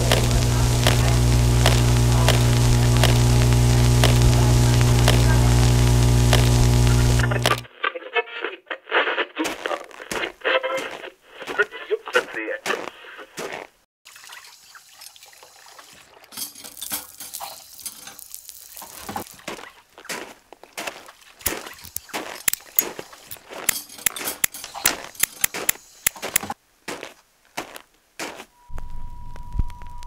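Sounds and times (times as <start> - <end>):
footsteps crunching in sand: 9.4 - 13.8, 18.2 - 28.5.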